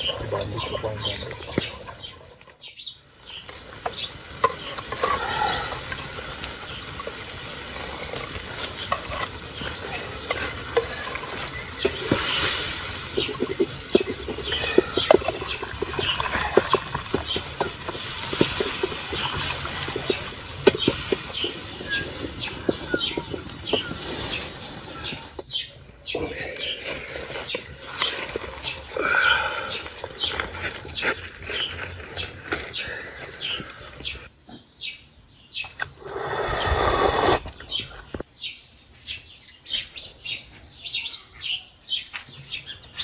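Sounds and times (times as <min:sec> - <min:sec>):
metal ladle scraping clay pot: 0:07.8 - 0:24.4.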